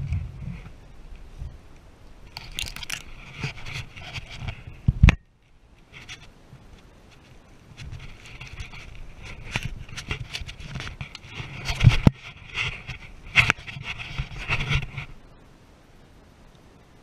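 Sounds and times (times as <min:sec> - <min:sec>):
scraping and knocking handling noise: 0:02.3 - 0:05.2, 0:07.1 - 0:15.1.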